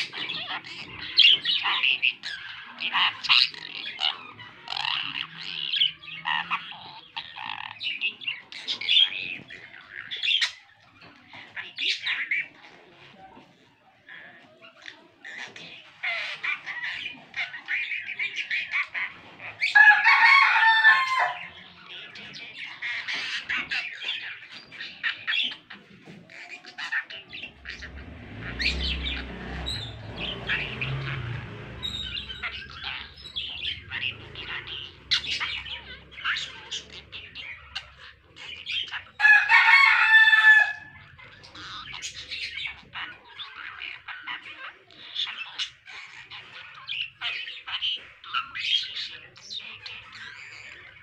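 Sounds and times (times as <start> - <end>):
budgerigar chattering and warbling: 0.0 - 19.8, 20.9 - 51.0
loud budgerigar calls: 0.0 - 51.0
handling noise rumble: 27.5 - 36.7.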